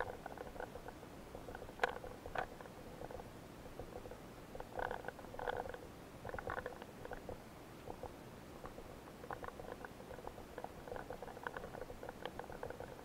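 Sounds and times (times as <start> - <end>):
underwater clicking and crackling: 0.0 - 13.0.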